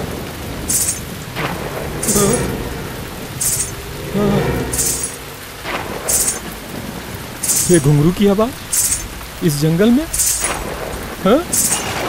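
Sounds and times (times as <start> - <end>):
steady rain hissing: 0.0 - 12.0
ankle bells jingling: 0.7 - 6.5, 7.4 - 7.9, 8.7 - 9.1, 10.1 - 10.6, 11.5 - 12.0.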